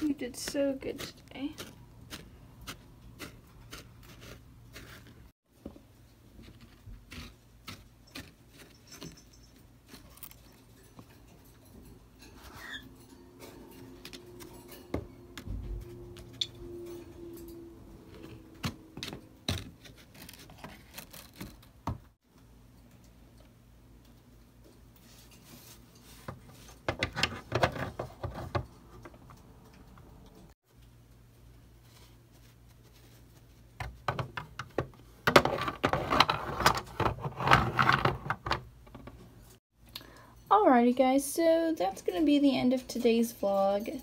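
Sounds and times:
plastic toys knocking and rustling: 0:26.1 - 0:29.4, 0:33.8 - 0:39.6.

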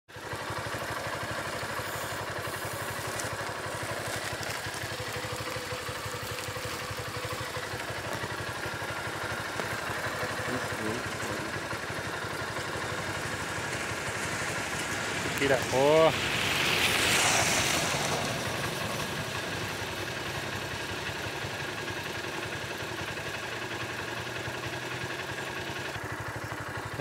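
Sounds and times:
engine idling: 0:00.1 - 0:27.0.

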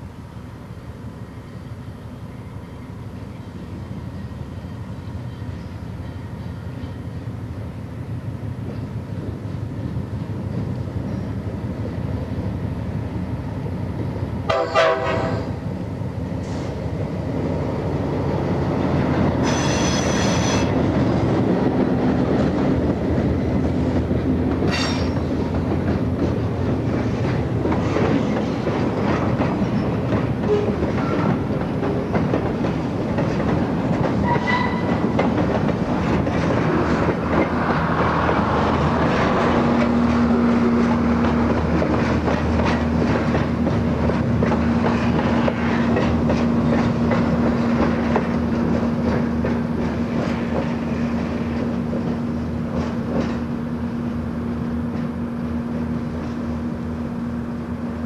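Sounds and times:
diesel locomotive engine rumbling: 0:00.0 - 0:58.0
train horn blast: 0:14.5 - 0:15.6, 0:19.4 - 0:20.7, 0:34.2 - 0:35.0
train wheels clacking over rail joints: 0:19.2 - 0:53.7
wheel squeal: 0:19.4 - 0:20.7.

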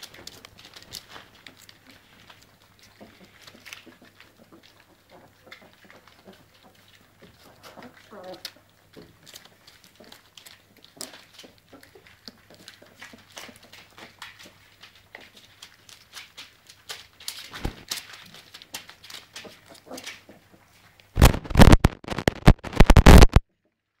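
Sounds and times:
puppies eating clicks: 0:00.0 - 0:21.1
newspaper crinkling: 0:21.2 - 0:23.4.

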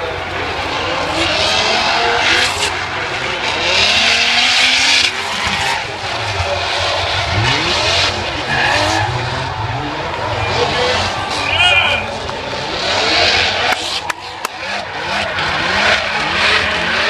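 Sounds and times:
car engines revving: 0:00.0 - 0:17.0
tyres squealing: 0:07.3 - 0:12.3.

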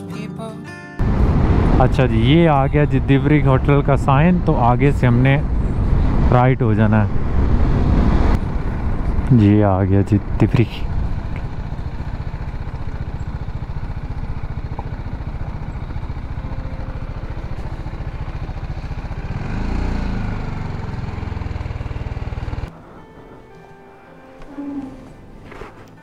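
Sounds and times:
motorcycle engine idling: 0:08.4 - 0:22.8.

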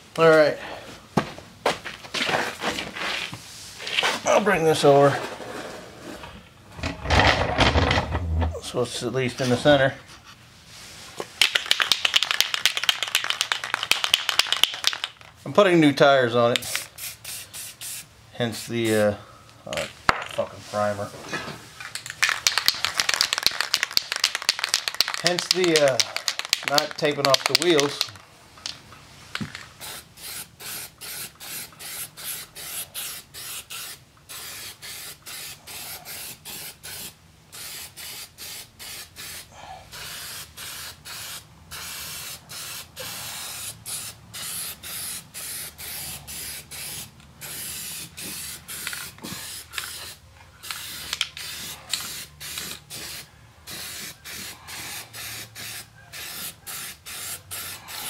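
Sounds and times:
aerosol spray can hissing: 0:16.7 - 0:18.1, 0:29.8 - 0:58.0.

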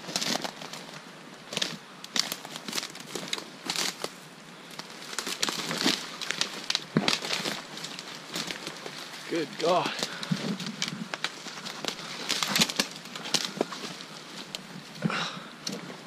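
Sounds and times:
twigs and brush crackling: 0:00.0 - 0:16.0.

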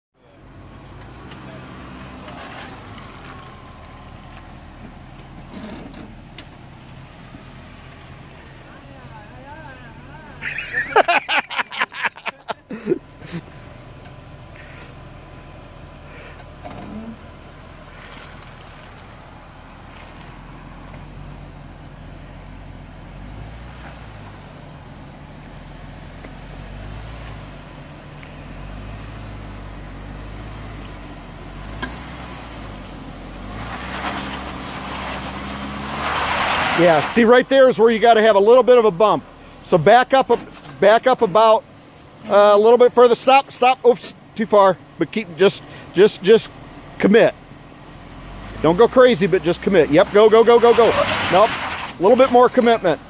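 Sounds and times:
engine running at low revs: 0:12.4 - 0:43.4.

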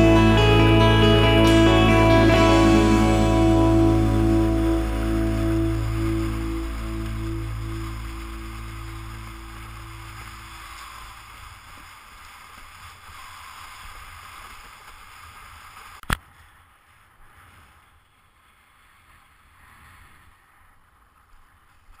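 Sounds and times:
water rushing and hissing: 0:00.0 - 0:16.0.

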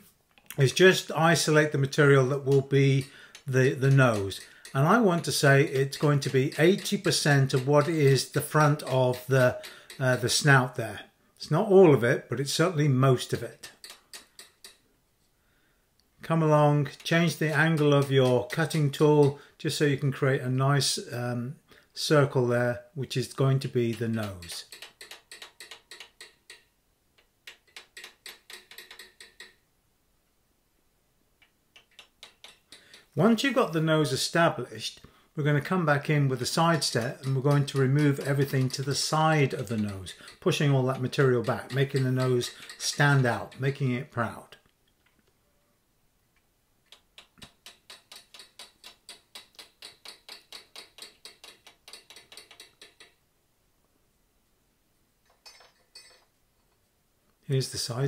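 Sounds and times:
hammer tapping chisel on steel: 0:01.2 - 0:10.8, 0:13.3 - 0:14.9, 0:16.4 - 0:19.5, 0:23.4 - 0:29.6, 0:31.4 - 0:34.3, 0:35.8 - 0:44.3, 0:46.9 - 0:53.2.

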